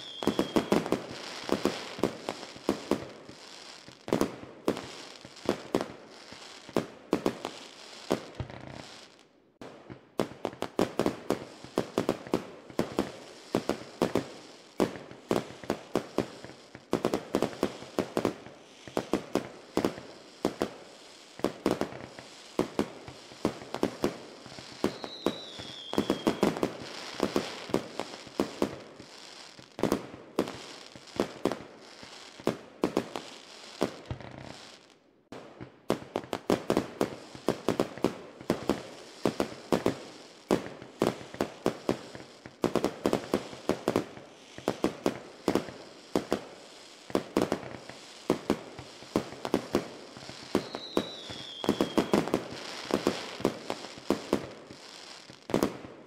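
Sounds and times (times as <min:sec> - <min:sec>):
falling firework whistle: 0:00.0 - 0:04.0, 0:24.4 - 0:29.5, 0:47.4 - 0:55.8
fireworks bangs and pops: 0:00.0 - 0:56.0.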